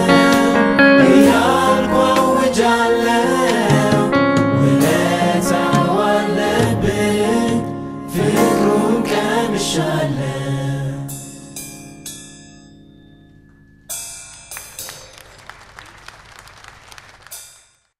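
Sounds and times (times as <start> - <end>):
church choir with band: 0.0 - 11.8
ringing percussion strikes: 11.1 - 15.7.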